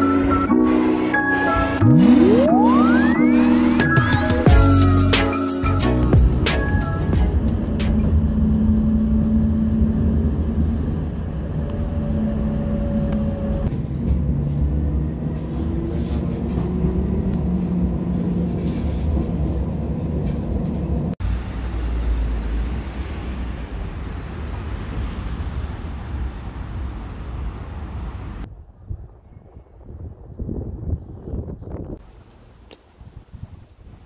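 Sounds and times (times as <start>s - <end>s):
whining motor tones: 0.0s - 4.5s
tram running rumble: 0.0s - 32.6s.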